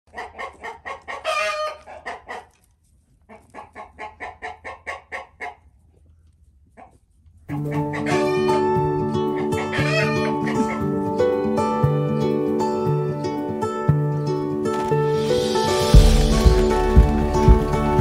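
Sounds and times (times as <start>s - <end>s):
chicken clucking: 0.1s - 11.0s
plucked string music: 7.5s - 18.0s.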